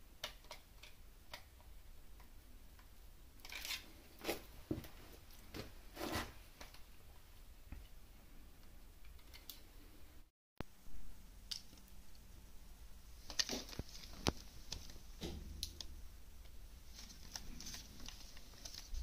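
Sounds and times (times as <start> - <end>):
small objects clicking and scraping: 2.8 - 4.4.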